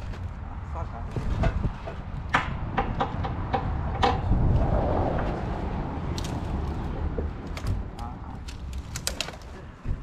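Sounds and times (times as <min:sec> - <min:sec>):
wood knocking: 0:01.4 - 0:04.3
low rumble: 0:02.5 - 0:07.9.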